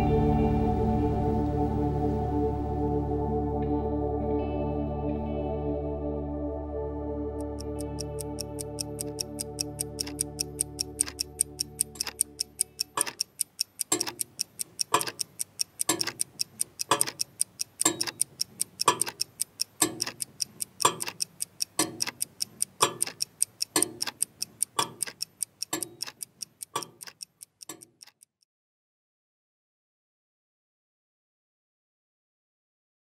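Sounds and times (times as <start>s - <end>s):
loud clock tick: 7.4s - 28.3s
faint quick clock ticks: 7.4s - 28.4s.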